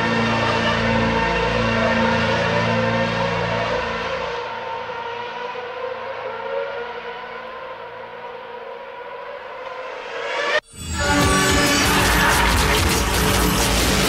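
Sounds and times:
siren-like synth drone: 0.0 - 14.0
electronic music track: 9.5 - 14.0.

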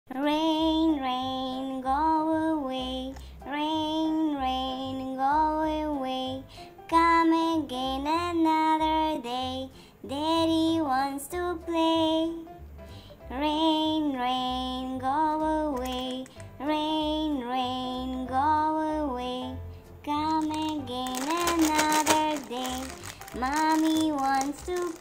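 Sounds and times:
high child-like voice singing: 20.1 - 25.0.

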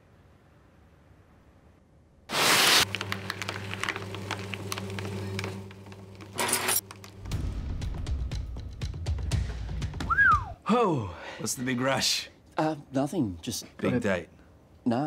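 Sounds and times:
shredder pulling paper burst: 2.3 - 6.8
paper crackling as cut: 2.3 - 7.2
paper shredder motor hum: 2.3 - 7.3.

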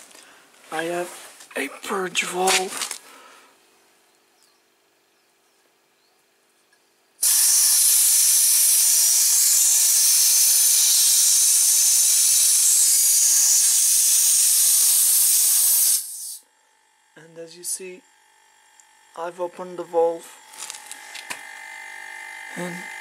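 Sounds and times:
compressed air hissing: 7.2 - 16.4.

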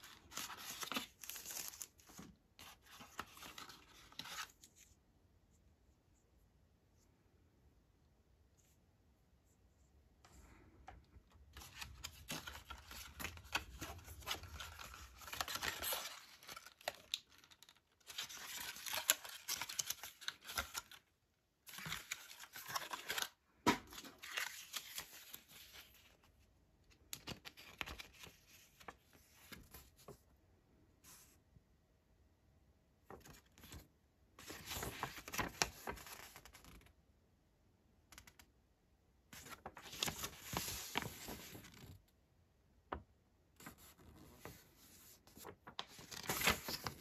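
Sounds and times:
cardboard packaging rustling: 0.0 - 4.8, 11.5 - 21.1, 21.7 - 26.1, 45.4 - 47.0.

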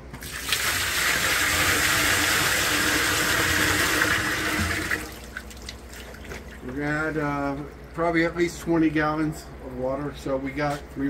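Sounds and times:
water pouring from bucket: 0.2 - 6.7.

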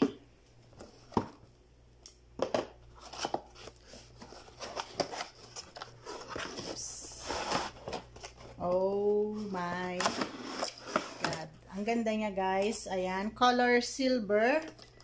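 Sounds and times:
cardboard rustle: 3.0 - 11.4.

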